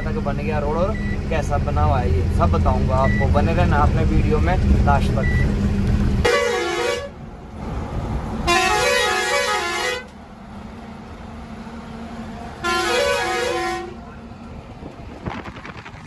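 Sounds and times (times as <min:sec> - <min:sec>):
truck rumbling on road: 0:00.0 - 0:16.0
truck musical horn tune: 0:06.2 - 0:07.2, 0:08.4 - 0:10.2, 0:12.6 - 0:14.2.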